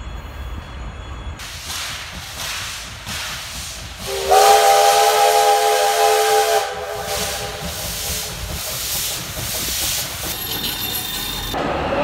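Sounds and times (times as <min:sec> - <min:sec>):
steam hissing: 0:01.4 - 0:11.6
steam locomotive whistle: 0:04.0 - 0:08.4.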